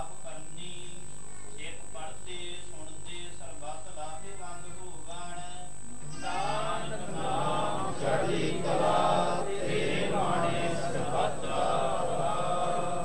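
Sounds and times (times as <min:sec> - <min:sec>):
person chanting a prayer: 0:06.1 - 0:13.0.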